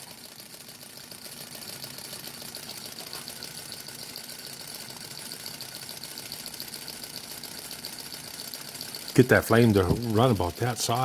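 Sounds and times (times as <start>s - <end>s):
stirling engine ticking clatter: 0.0s - 11.0s.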